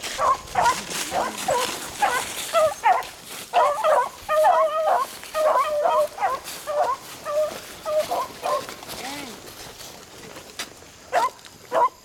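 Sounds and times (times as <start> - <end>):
hounds baying: 0.0 - 8.8, 11.1 - 12.0.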